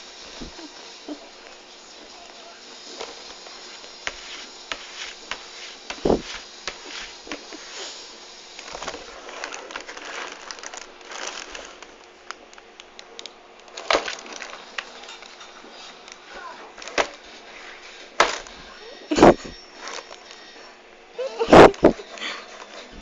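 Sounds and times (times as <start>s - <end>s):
thumps on cardboard box: 4.1s - 6.9s.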